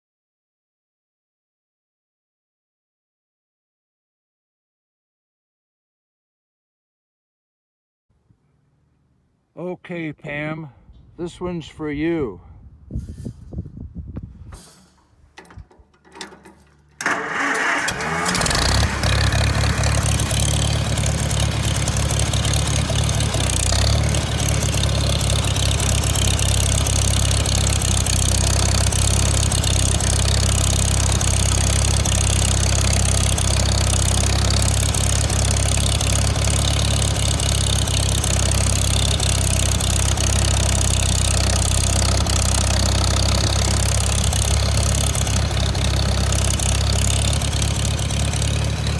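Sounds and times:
tractor engine starting and running: 14.2 - 48.9.

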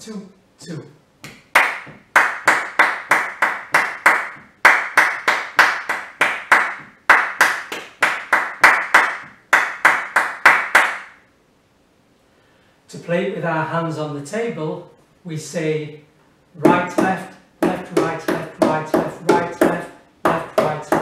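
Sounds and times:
hand claps in rhythm: 1.2 - 11.2, 16.6 - 21.0.

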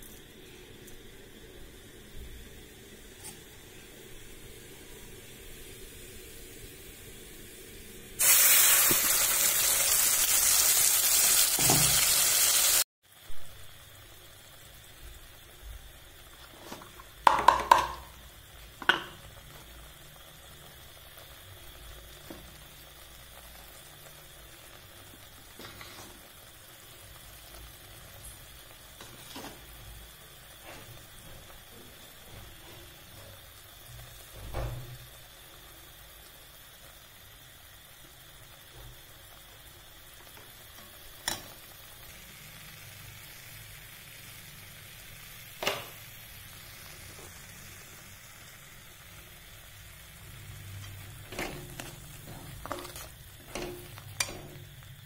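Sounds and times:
paste sizzling in a pan: 0.0 - 55.0
metal spatula scraping a pan: 50.8 - 54.6.

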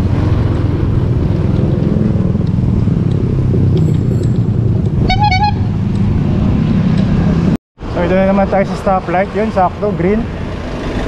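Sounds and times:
road traffic rumble: 0.0 - 11.0
vehicle horn toot: 5.0 - 5.7.

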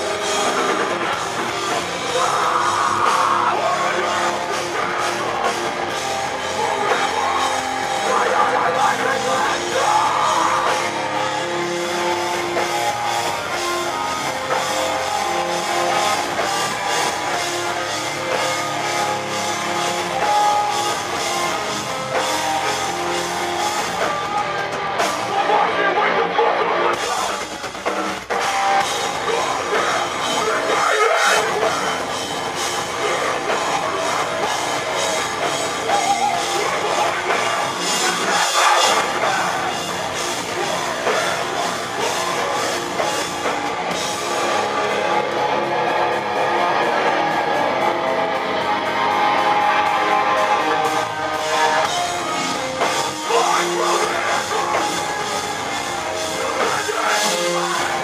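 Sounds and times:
vocals at microphone: 0.0 - 5.4, 6.1 - 11.0, 25.2 - 27.5, 29.2 - 32.0, 35.9 - 42.7, 53.0 - 58.0
distorted guitars: 0.0 - 58.0
pounding drums and cymbals: 26.9 - 47.6.

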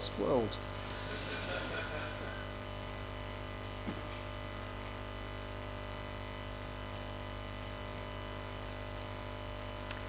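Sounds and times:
electrical mains hum: 0.0 - 10.0.

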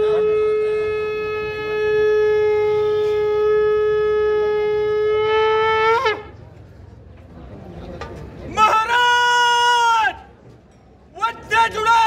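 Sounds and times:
conch shell blown: 0.0 - 6.3.

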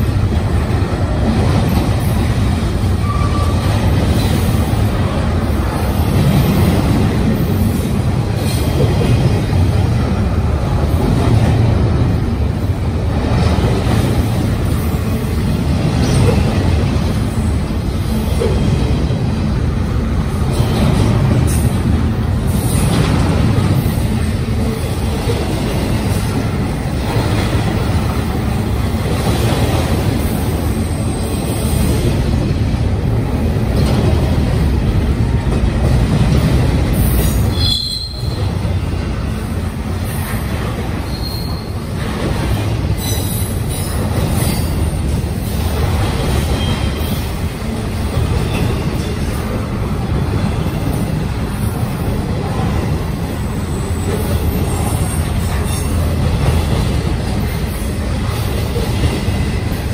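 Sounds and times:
freight train rolling past: 0.0 - 59.9
high wheel squeals: 3.0 - 3.8, 41.1 - 41.8.

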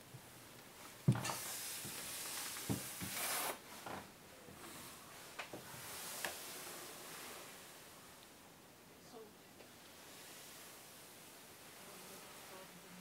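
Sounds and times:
rustling hiss: 0.0 - 13.0
soft thumps on a wooden floor: 1.0 - 1.3.

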